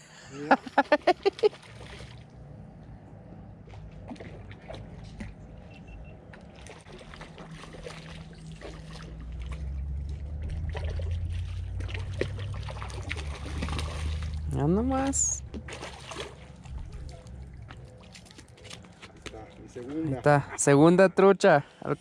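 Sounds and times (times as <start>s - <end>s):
fish splashing in water: 0.8s - 2.4s, 3.6s - 5.7s, 6.3s - 20.0s
low rumble: 7.0s - 18.0s.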